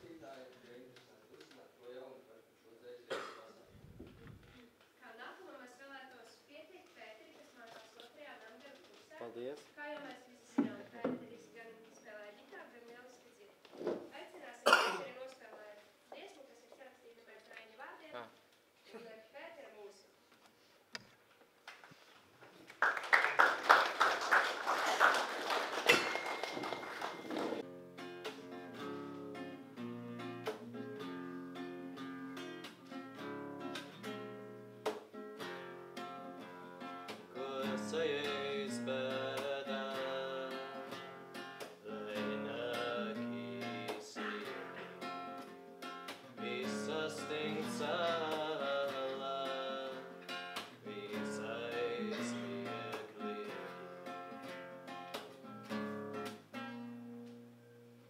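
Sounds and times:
acoustic guitar: 0:07.4 - 0:15.5, 0:25.0 - 0:58.0
person singing: 0:36.4 - 0:40.9, 0:41.8 - 0:45.2, 0:46.3 - 0:54.0.

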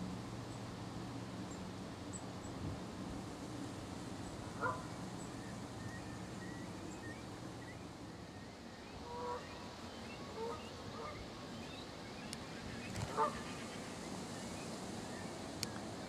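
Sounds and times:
geese honking: 0:13.1 - 0:13.6.

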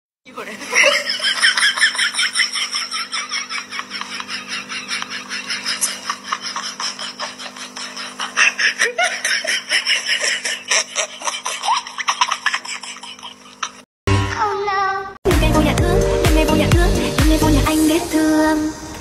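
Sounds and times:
person giggling: 0:00.6 - 0:13.8.

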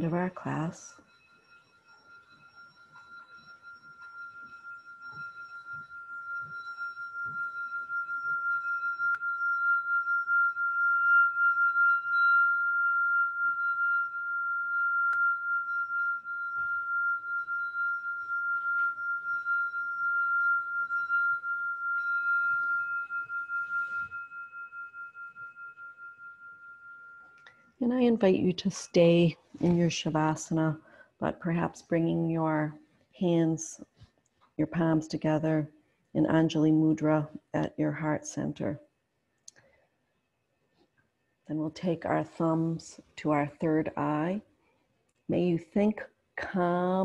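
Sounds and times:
singing bowl ringing: 0:00.0 - 0:28.2.

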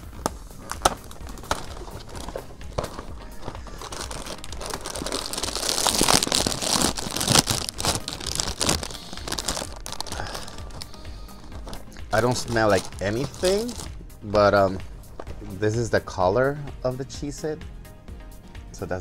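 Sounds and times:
plastic bag crinkling and tearing: 0:00.7 - 0:13.9.

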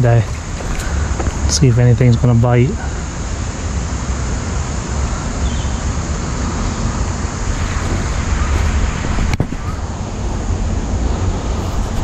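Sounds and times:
wind buffeting microphone: 0:04.2 - 0:12.0.

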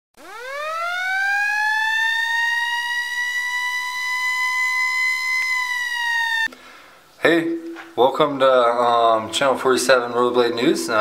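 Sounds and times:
siren wailing: 0:00.2 - 0:06.5.

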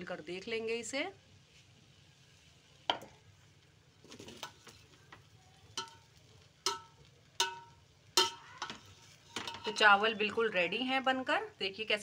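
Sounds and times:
spoon clinking on metal pot: 0:05.8 - 0:10.0.

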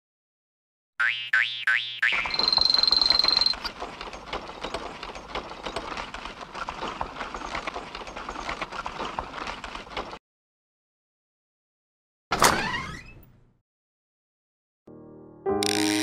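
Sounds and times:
cartoon van rattling clatter: 0:02.1 - 0:10.2.

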